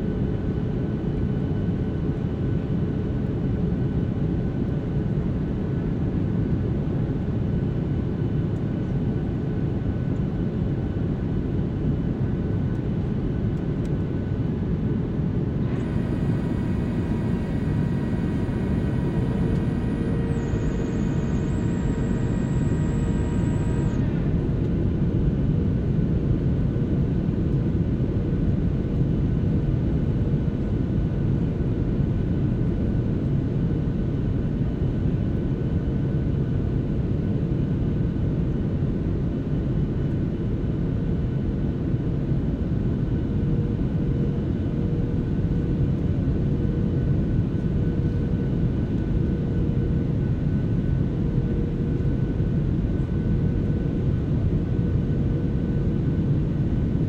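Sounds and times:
airplane cabin engine rumble: 12.8 - 25.6
multi-tone whine: 14.8 - 25.6
faint steady hum: 15.5 - 24.8.

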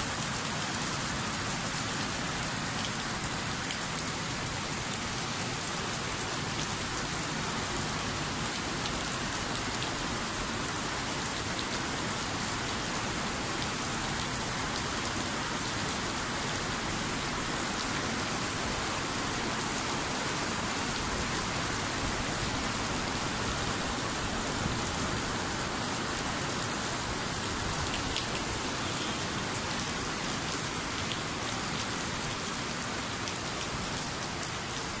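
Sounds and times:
heavy rain on concrete: 0.0 - 35.0.

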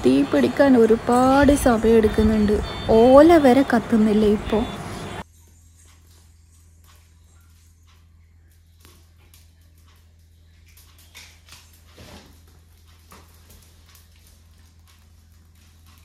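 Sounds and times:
low steady hum: 0.0 - 16.0
dry leaves crackling in fire: 8.5 - 16.0.

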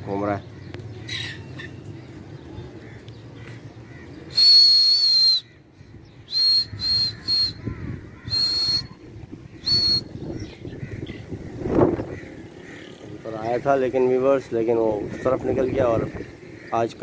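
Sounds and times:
shrill whistle blasts: 4.3 - 5.5, 6.3 - 7.6, 8.3 - 8.9, 9.6 - 10.1.

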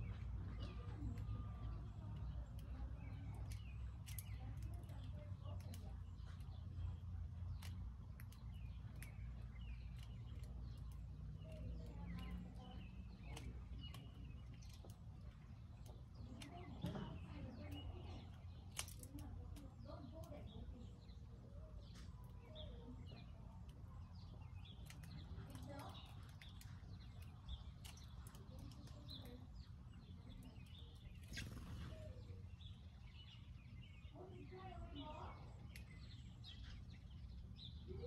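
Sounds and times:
small birds chirping: 0.0 - 38.0.

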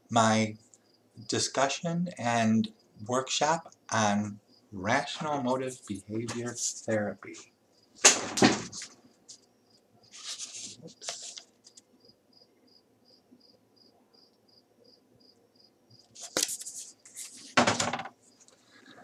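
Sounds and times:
paper sheet rustling: 5.6 - 7.0, 8.4 - 9.0, 10.1 - 11.8, 16.1 - 18.6.

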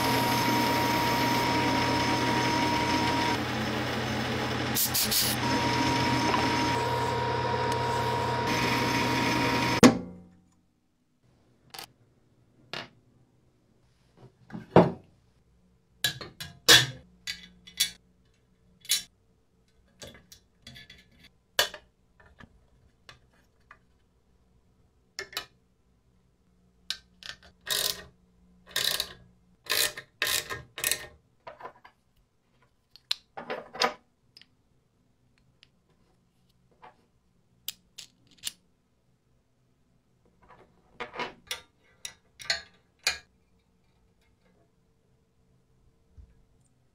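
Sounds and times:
metal parts clicking and clinking: 16.4 - 19.1, 37.6 - 38.6.

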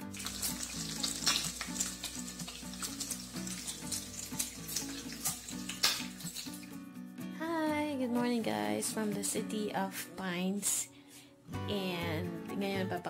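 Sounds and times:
food sizzling in a wok: 0.0 - 6.8
background music: 0.0 - 13.0
stirring clicks: 0.2 - 6.7.

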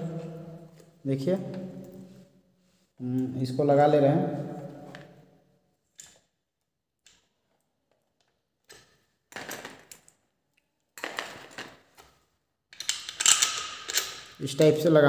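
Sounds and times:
small metal parts clinking: 12.7 - 14.6.

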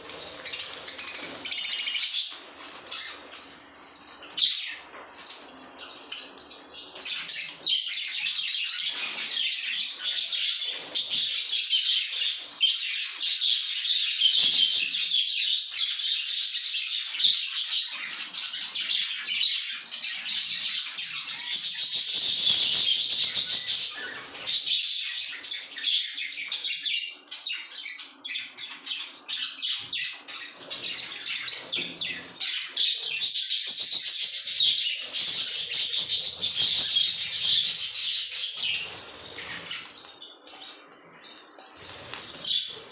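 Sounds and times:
budgerigars chattering: 17.5 - 27.3, 27.9 - 42.9.

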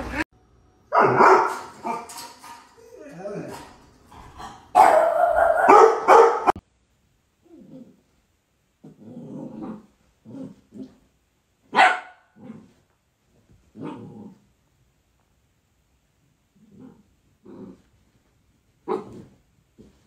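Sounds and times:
dog barking: 0.9 - 2.1, 4.4 - 6.6, 11.7 - 12.6, 18.8 - 19.3
dog growling: 2.8 - 4.7, 7.4 - 8.1, 8.8 - 11.0, 13.7 - 14.5, 16.6 - 17.9.

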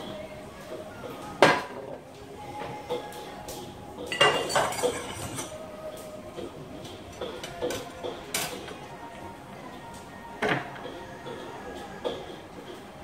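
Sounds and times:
dishes and utensils clinking: 4.0 - 9.0.

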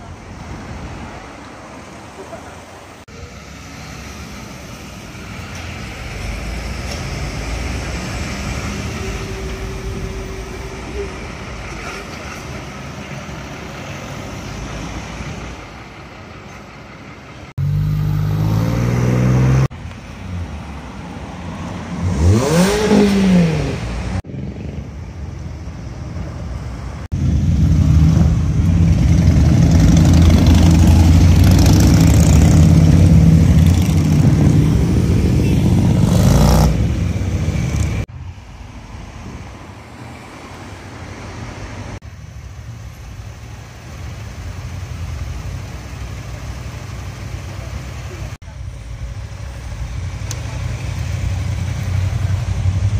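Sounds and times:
truck engine hum: 0.0 - 52.9
loud engine noise: 3.1 - 38.1, 40.8 - 52.9
engine revving: 17.6 - 19.8, 21.9 - 24.3, 27.1 - 38.1.

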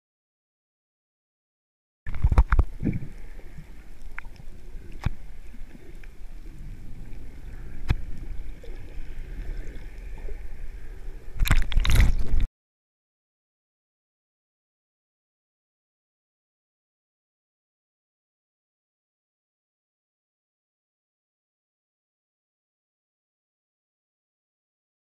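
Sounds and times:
muffled underwater rumble: 2.1 - 12.5
water churning and gurgling: 2.1 - 12.5
water splashing and sloshing: 2.1 - 12.5.

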